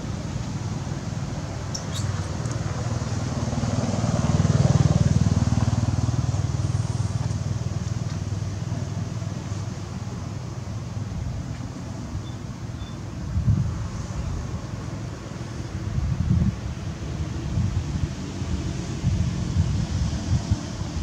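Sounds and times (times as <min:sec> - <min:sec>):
vehicle engine passing by: 0:01.9 - 0:08.4.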